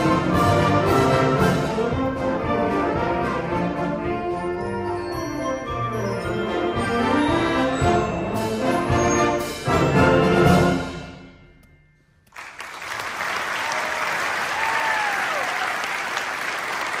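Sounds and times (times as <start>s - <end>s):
wind band playing chords: 0.0s - 11.4s
audience applauding: 12.3s - 17.0s.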